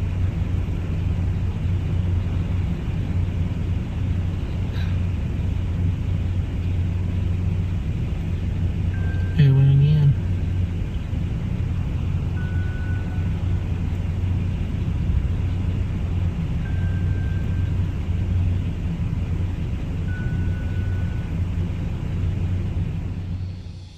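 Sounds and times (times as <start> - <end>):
low rumble: 0.0 - 23.9.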